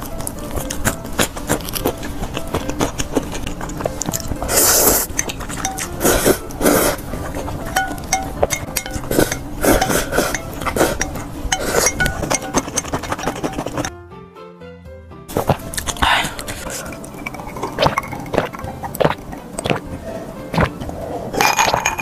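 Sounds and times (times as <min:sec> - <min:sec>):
loud noodle slurping: 0:00.6 - 0:07.8, 0:08.8 - 0:13.9, 0:15.3 - 0:19.8, 0:20.5 - 0:22.0.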